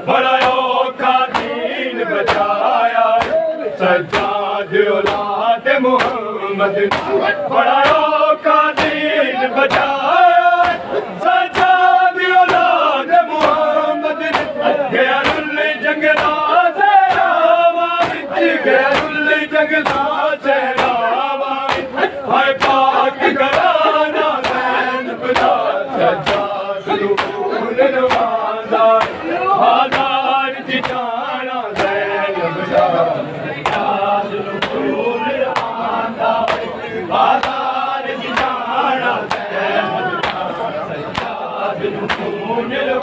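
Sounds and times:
crowd of men chanting: 0.0s - 43.0s
hands slapping chests: 1.3s - 1.6s, 2.3s - 2.6s, 3.2s - 3.4s, 5.0s - 5.4s, 6.0s - 6.2s, 6.9s - 7.2s, 8.8s - 9.0s, 10.6s - 10.8s, 14.3s - 14.6s, 15.2s - 15.5s, 16.1s - 16.4s, 17.1s - 17.4s, 19.8s - 20.1s, 21.6s - 22.0s, 22.6s - 23.8s, 24.4s - 24.7s, 25.3s - 25.6s, 26.2s - 26.6s, 27.2s - 27.4s, 28.1s - 29.2s, 29.9s - 30.2s, 30.8s - 31.1s, 33.6s - 33.9s, 35.5s - 35.8s, 36.4s - 36.7s, 37.3s - 37.6s, 38.3s - 38.6s, 39.3s - 39.5s, 40.2s - 40.5s, 41.1s - 41.4s, 42.0s - 42.4s.

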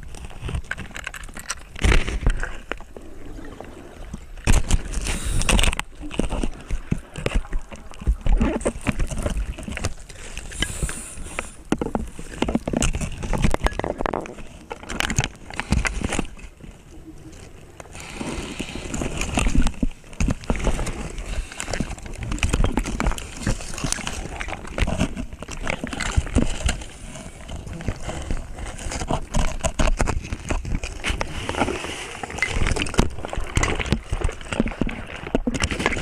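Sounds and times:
diver breathing through regulator: 5.0s - 5.8s, 10.1s - 11.7s, 17.9s - 19.4s.

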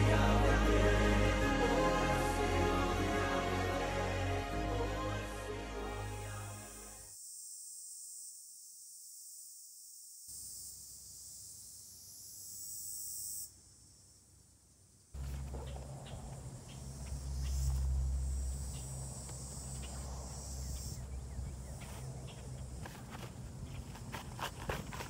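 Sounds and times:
insects buzzing: 5.8s - 25.0s.

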